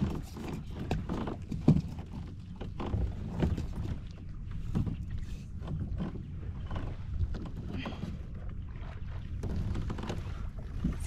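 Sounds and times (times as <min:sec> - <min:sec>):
knocks on hull: 0:00.0 - 0:04.0
water slapping against kayak hull: 0:00.0 - 0:11.0.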